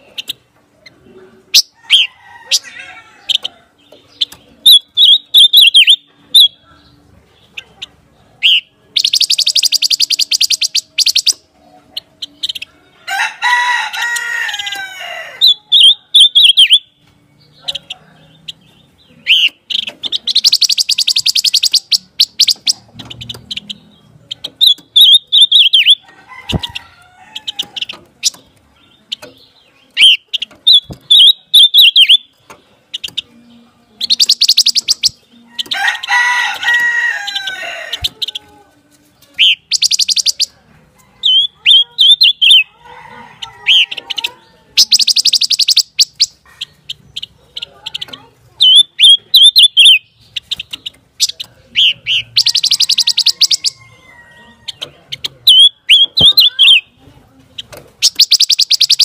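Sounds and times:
bird singing high trills and warbles: 3.3s - 7.8s, 8.4s - 12.7s, 15.4s - 26.8s, 27.4s - 35.8s, 39.4s - 40.5s, 41.2s - 42.8s, 44.8s - 53.8s, 57.6s - 59.0s.

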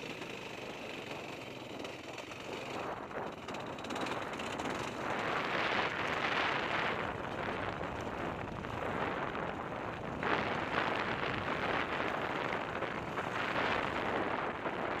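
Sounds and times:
dirt bike engine: 0.0s - 15.0s
wind roar on microphone: 1.0s - 15.0s.

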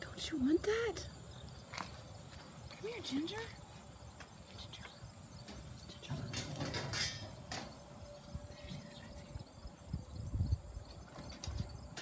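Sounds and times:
sharp metallic rattles: 5.4s - 7.9s
metal dog feeder clattering: 6.3s - 7.6s.

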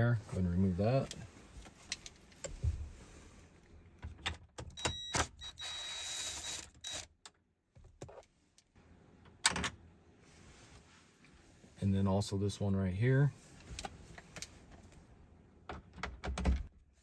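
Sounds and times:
power tool whirring: 5.5s - 7.0s.

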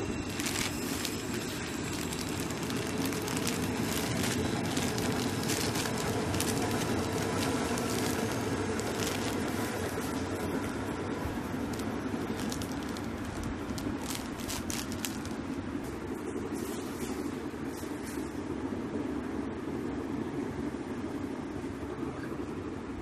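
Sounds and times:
plastic bag crinkling: 0.0s - 16.0s
low background noise: 0.0s - 23.0s.

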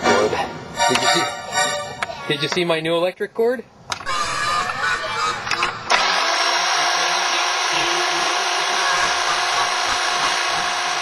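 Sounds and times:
electric hedge trimmer buzzing: 5.5s - 11.0s.

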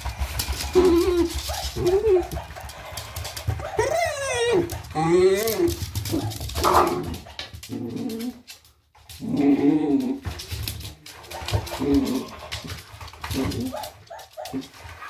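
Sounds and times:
dog yapping and whimpering: 0.6s - 2.6s, 3.5s - 7.1s.

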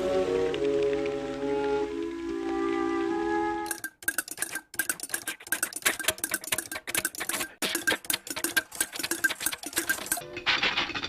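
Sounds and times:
peas pattering over nails: 3.7s - 10.2s.

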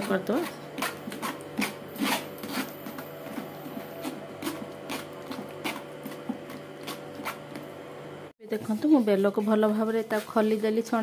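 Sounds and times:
spoon scraping fruit pulp on strainer: 8.7s - 10.6s.

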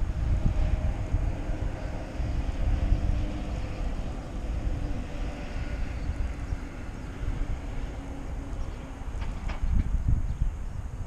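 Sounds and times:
wind rumbling on microphone: 0.0s - 11.0s.

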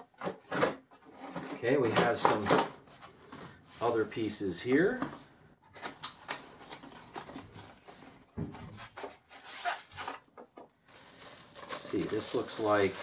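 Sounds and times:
cardboard packaging rustling: 5.7s - 13.0s.

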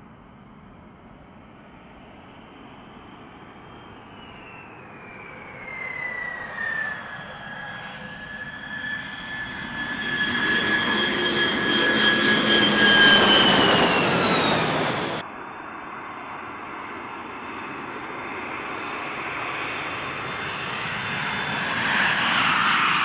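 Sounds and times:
jet engines whining: 1.4s - 15.3s.

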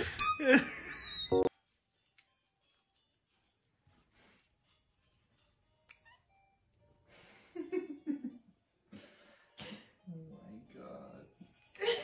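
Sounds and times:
small bell tinkling: 0.0s - 7.2s.

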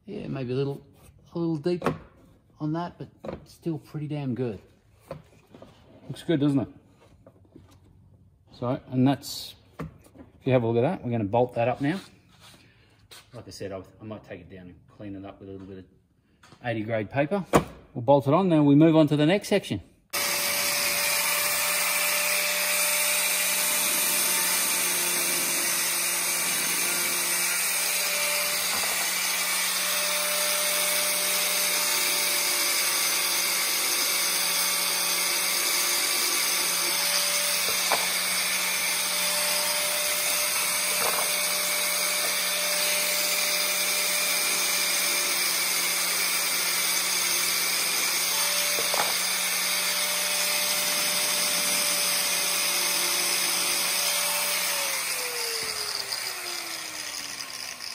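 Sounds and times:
angle grinder grinding plastic: 20.2s - 57.9s.

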